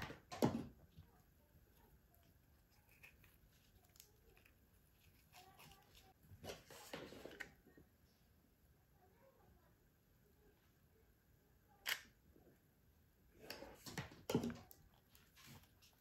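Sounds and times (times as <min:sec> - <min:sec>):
cord and cardboard rustling: 0:01.8 - 0:07.4, 0:13.5 - 0:16.0.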